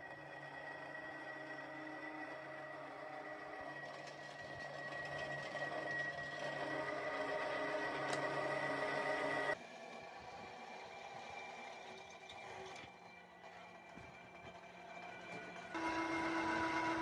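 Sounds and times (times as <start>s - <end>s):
drill machine hum: 0.0s - 12.1s, 12.9s - 17.0s
drill bit cutting steel: 15.8s - 17.0s.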